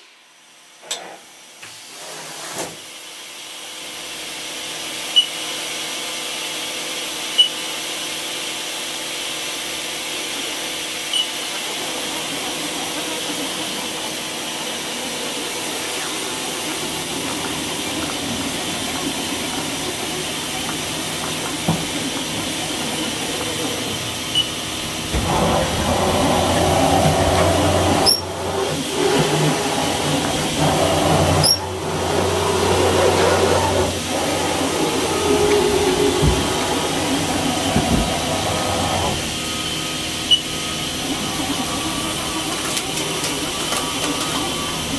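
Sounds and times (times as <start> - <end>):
faint machine hum: 9.9 - 44.9.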